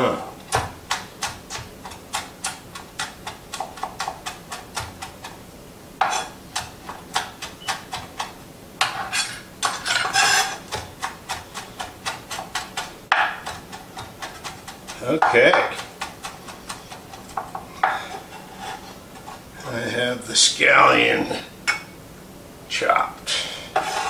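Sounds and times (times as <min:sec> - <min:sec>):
knife chopping on cutting board: 0:00.5 - 0:05.3, 0:06.0 - 0:18.0.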